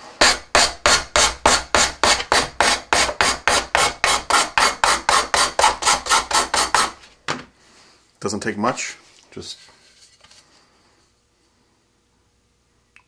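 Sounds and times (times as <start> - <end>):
sanding block scraping tube: 0.2 - 7.0.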